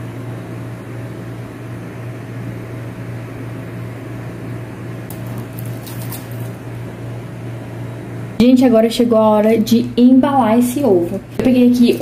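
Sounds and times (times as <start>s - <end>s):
handling noise: 5.1s - 6.6s.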